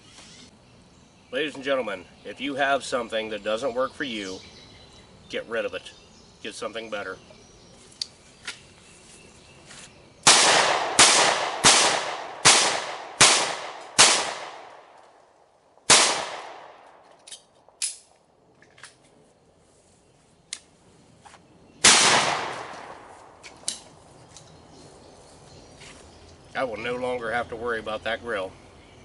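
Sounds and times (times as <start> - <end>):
loud shotgun shot: 10.2 - 14.9, 15.9 - 16.9, 21.8 - 23.1
handgun shots with echo: 10.3 - 14.8, 15.9 - 16.9, 21.8 - 22.9.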